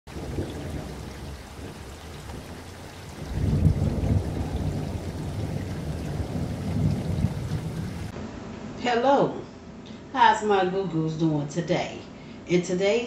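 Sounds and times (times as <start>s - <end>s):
rain-like rushing noise: 0.1s - 8.1s.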